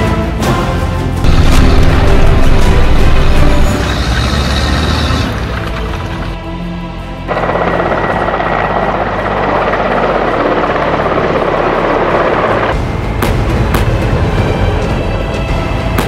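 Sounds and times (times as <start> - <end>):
music with sharp hits: 0.0 - 4.1, 12.7 - 16.0
helicopter rotor and turbine: 1.2 - 16.0.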